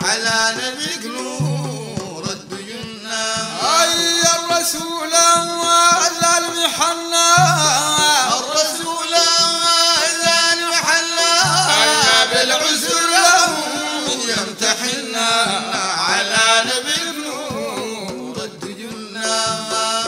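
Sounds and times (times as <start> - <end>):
man singing praise song: 0.0 - 20.0.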